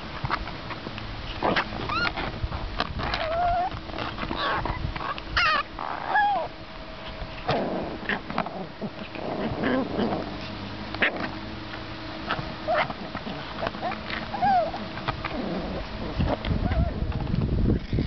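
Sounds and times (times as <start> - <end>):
puppies whining and yipping: 1.4 - 2.3, 3.0 - 10.5, 12.3 - 17.1.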